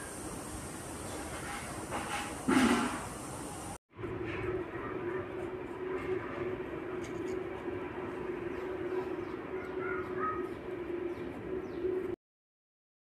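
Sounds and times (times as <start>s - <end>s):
low mechanical hum: 3.2s - 12.2s.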